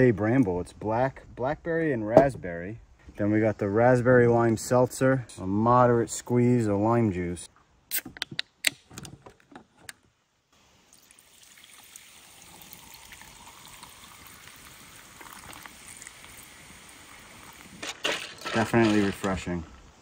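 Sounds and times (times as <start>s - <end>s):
drink pouring over ice: 10.9s - 17.8s.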